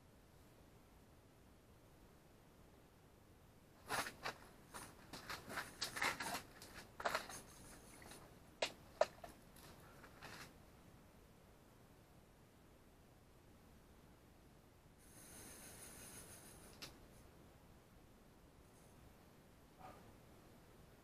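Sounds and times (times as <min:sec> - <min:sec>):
clothing and fabric rustling: 0:03.8 - 0:08.3, 0:08.9 - 0:10.6.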